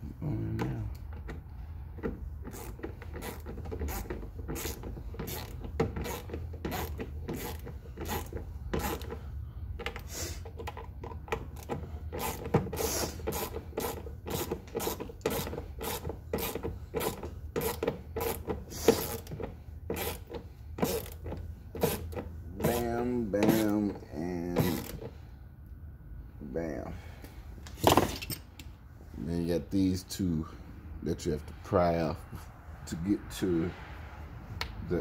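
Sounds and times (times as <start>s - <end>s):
screwdriver rasping and clicking: 2.0s - 9.2s, 9.8s - 23.7s, 24.6s - 25.1s.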